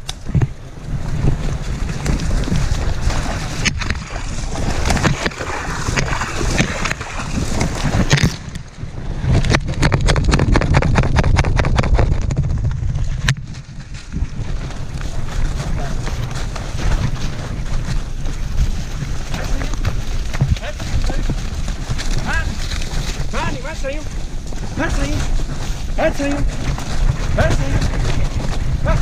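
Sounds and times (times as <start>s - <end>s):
rubbing and buffeting on camera: 0.4s - 29.0s
creek water splashing: 0.9s - 9.0s
rapid knocks and clicks: 9.3s - 13.5s.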